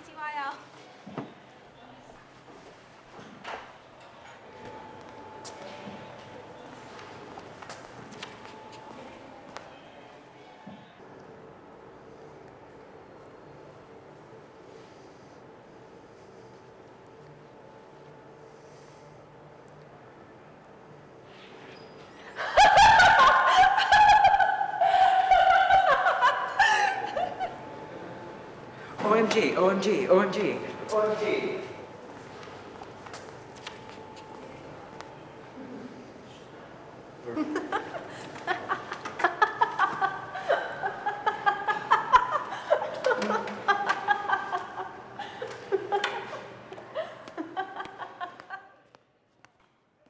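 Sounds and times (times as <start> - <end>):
young woman laughing: 22.4 - 27.6, 37.3 - 48.8.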